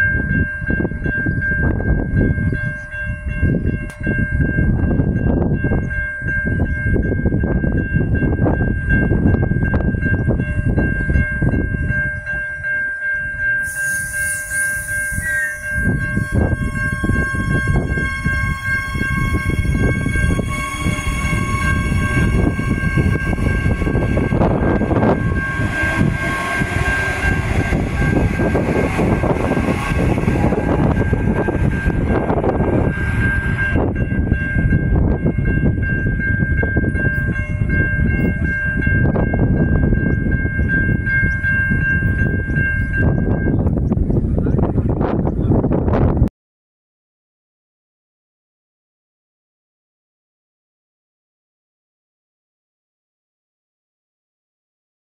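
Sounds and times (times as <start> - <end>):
steady high tone: 0.0 - 43.8
train wheels rumbling on rails: 0.0 - 46.3
electric motor whine rising: 13.7 - 33.7.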